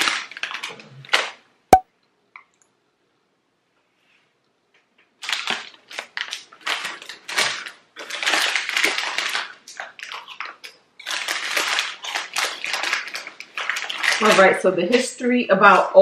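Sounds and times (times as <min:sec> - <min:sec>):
foil snack bag crinkling: 0:00.0 - 0:01.4, 0:05.2 - 0:15.3.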